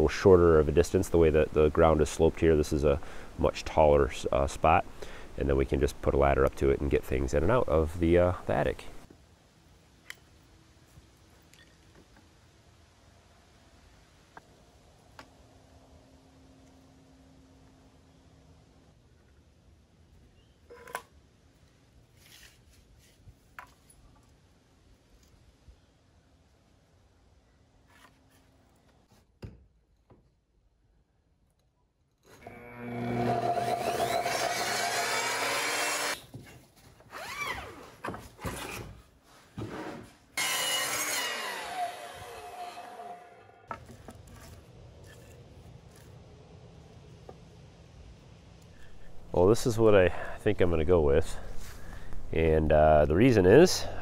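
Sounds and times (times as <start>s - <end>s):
miter saw cutting wood: 32.4s - 36.2s, 40.4s - 43.5s.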